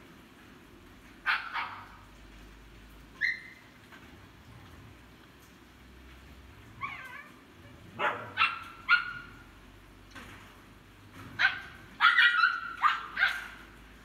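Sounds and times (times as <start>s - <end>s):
dog whining: 6.8s - 7.8s
huskies yipping: 11.4s - 13.6s.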